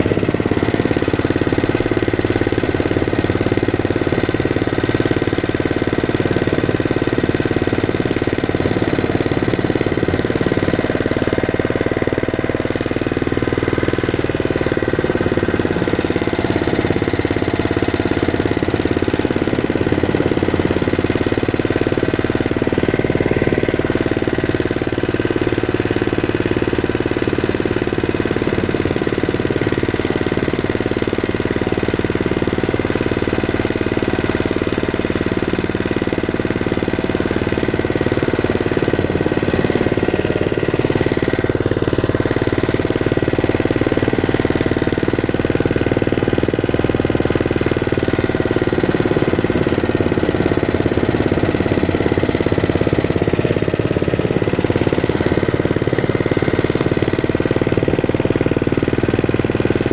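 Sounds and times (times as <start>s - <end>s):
single-cylinder tractor engine running: 0.0s - 59.9s.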